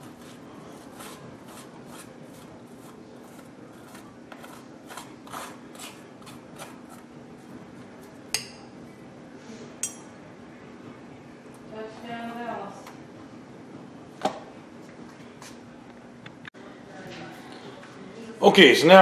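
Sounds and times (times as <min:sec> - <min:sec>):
fork scraping squash flesh: 0:00.0 - 0:07.1
fork clinking against glass dish: 0:09.8 - 0:10.1.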